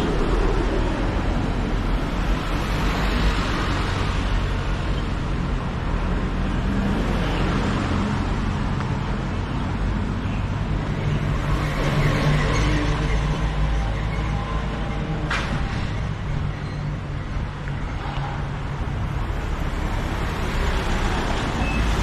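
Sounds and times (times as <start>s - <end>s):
tyre noise on road: 0.0s - 22.0s.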